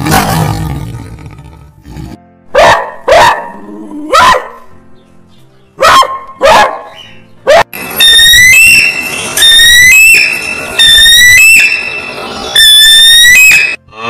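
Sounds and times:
faint background music: 0.0 - 10.0
dog barking: 2.5 - 4.6, 5.8 - 7.7.

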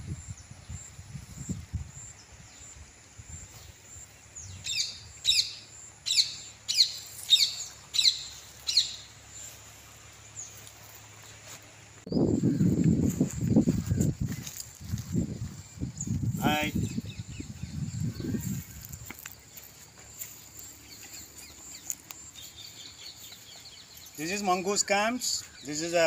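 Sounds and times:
bird calling sharp falling calls: 4.6 - 9.5.

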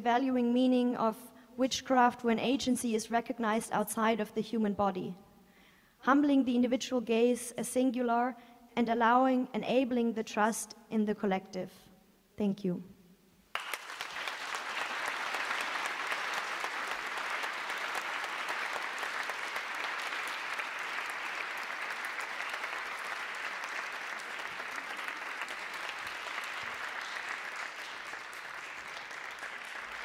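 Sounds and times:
audience applauding: 13.5 - 30.0.

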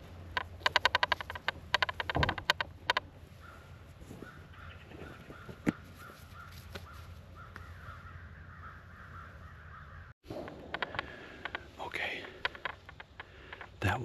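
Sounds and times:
squirrel barking: 0.3 - 10.1.

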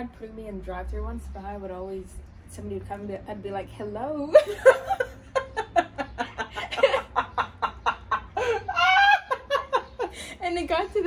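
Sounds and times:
woman laughing: 4.3 - 11.0.

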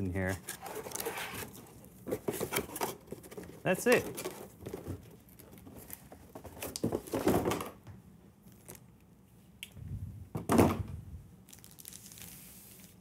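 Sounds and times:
cardboard box rustling and scraping: 0.2 - 5.1.

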